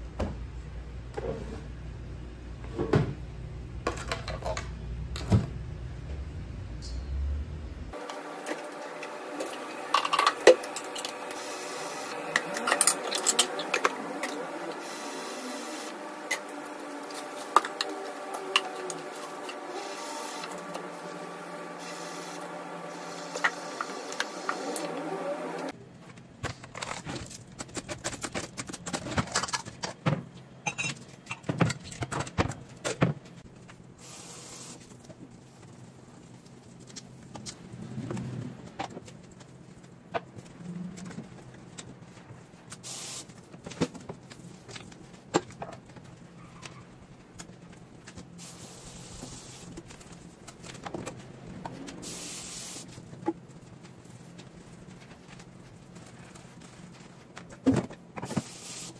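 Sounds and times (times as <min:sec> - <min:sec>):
tap water hissing: 0:21.8 - 0:25.7, 0:42.8 - 0:43.3, 0:48.4 - 0:49.8, 0:52.0 - 0:52.9, 0:58.3 - 0:58.9.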